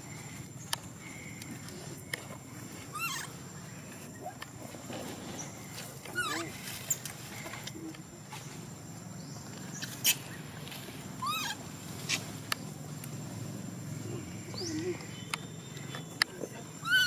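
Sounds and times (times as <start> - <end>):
macaque squeaky calls: 2.9 - 3.4, 6.1 - 7.0, 11.2 - 12.2, 16.8 - 17.0.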